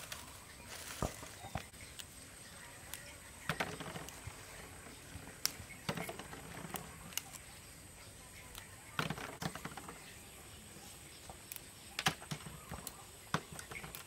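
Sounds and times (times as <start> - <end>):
twigs snapping and crackling: 0.0 - 2.2, 5.3 - 7.5, 11.2 - 14.0
leaves rustling: 0.0 - 14.0.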